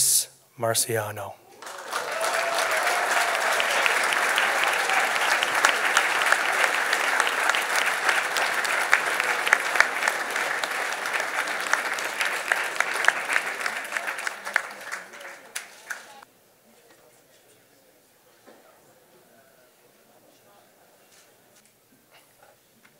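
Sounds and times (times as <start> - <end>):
audience applauding: 1.6 - 16.2.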